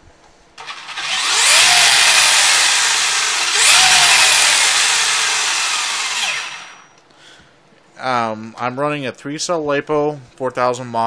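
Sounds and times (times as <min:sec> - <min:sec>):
electric motor grinding whine: 0:00.6 - 0:06.9.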